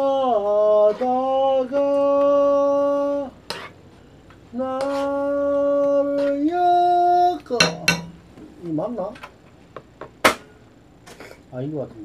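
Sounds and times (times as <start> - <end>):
man singing unaccompanied: 0.0 - 3.4, 4.4 - 8.2.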